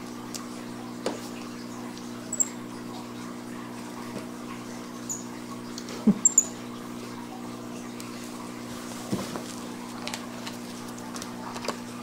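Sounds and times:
monkey squeaks: 2.3s - 2.6s, 6.2s - 6.6s.

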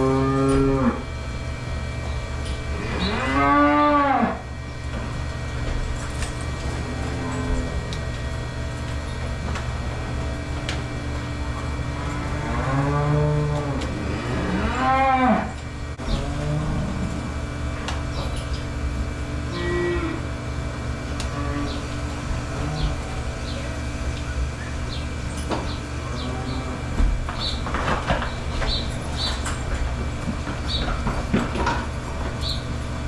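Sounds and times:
cows mooing: 0.0s - 1.1s, 2.7s - 4.6s, 6.5s - 8.3s, 11.6s - 17.4s, 19.4s - 20.4s, 21.2s - 23.5s, 26.0s - 27.0s
steady low hum: 0.0s - 33.0s.

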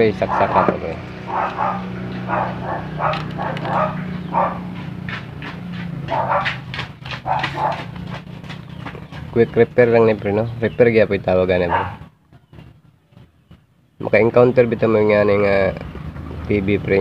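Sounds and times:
steady low hum: 0.0s - 17.0s
dog barking: 0.2s - 5.2s, 5.9s - 8.2s, 11.6s - 12.2s.

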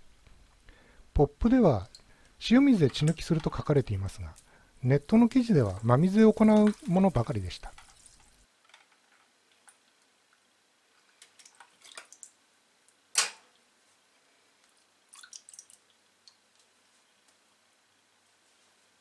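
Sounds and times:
water splashing and dripping in bowl: 5.0s - 8.4s, 11.0s - 12.4s, 14.7s - 16.7s.

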